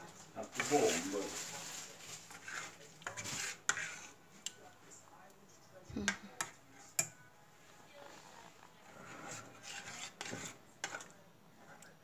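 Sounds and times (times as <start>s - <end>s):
metal spoon scraping a pot: 0.6s - 1.3s, 2.1s - 4.6s, 6.4s - 7.2s, 8.8s - 12.0s.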